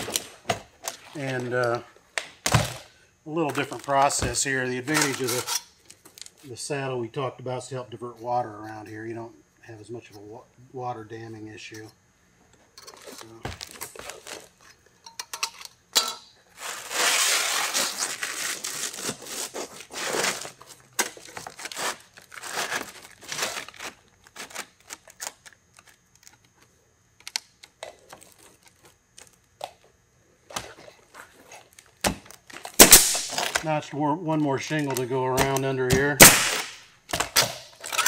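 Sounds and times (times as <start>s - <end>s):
roofing shingles scraping and crinkling: 16.6s - 26.0s
shingles rustling: 16.6s - 26.3s.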